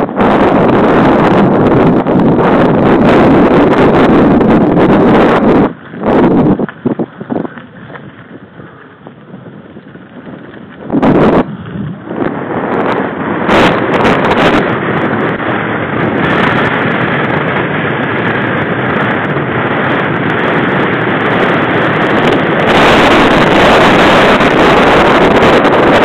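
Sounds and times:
wind rushing on microphone: 0.0 - 26.0
bike clicks and rattles: 4.9 - 12.6
tyres crunching on gravel: 5.7 - 12.2.

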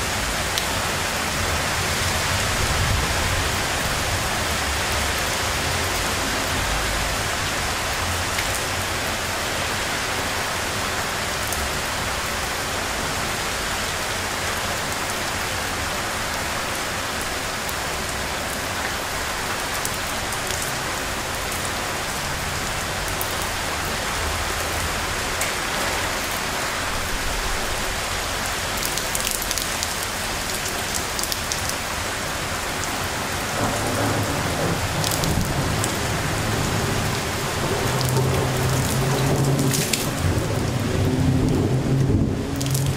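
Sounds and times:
storm rainfall: 0.0 - 42.9.

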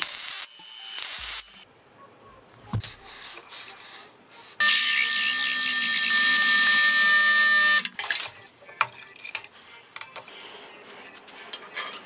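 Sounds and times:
welding crackle: 0.0 - 1.6
drill press boring steel: 4.6 - 8.1.

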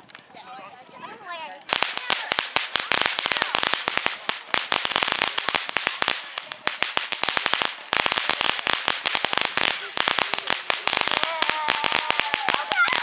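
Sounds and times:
fireworks fountain crackling: 0.0 - 13.0.

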